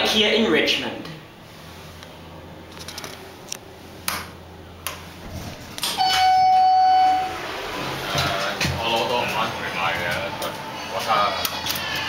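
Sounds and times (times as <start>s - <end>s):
elevator beep: 5.9s - 8.2s.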